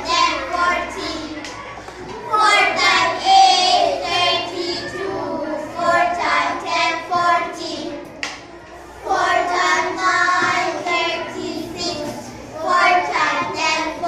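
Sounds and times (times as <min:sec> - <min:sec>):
children singing in unison: 0:00.0 - 0:01.5, 0:02.2 - 0:08.1, 0:08.9 - 0:14.0.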